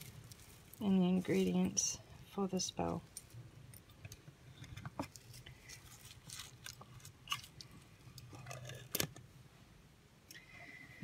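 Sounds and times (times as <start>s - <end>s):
bag and packaging crinkling: 5.1s - 7.8s.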